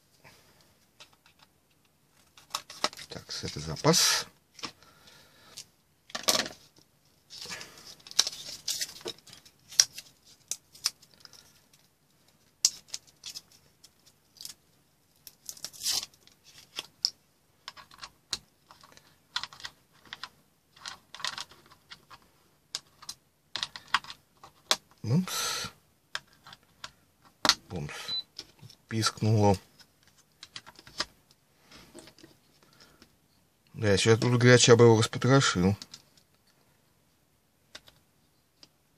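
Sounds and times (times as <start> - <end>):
small clicks and scrapes: 15.2 - 24.8.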